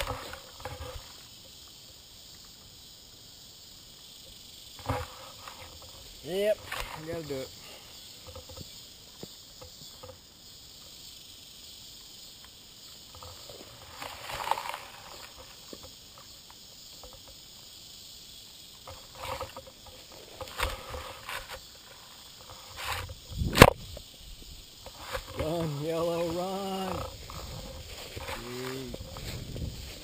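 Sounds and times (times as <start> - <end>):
high insect buzz: 0.0 - 30.0
rustling in grass: 13.0 - 16.1, 18.8 - 30.0.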